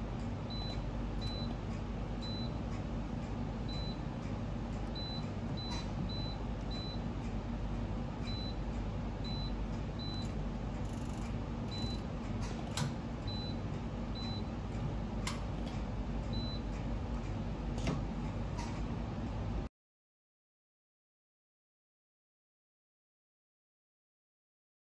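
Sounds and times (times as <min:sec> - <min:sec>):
steady low hum: 0:00.0 - 0:19.7
short high beeps: 0:10.9 - 0:12.0.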